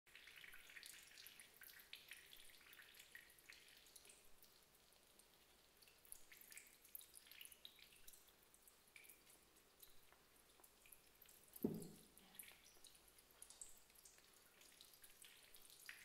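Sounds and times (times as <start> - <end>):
water dripping: 0.1 - 16.0.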